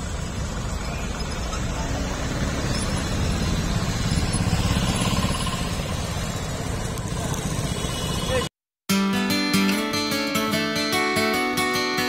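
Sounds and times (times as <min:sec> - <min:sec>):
passing vehicle engines rumbling: 0:00.0 - 0:08.5.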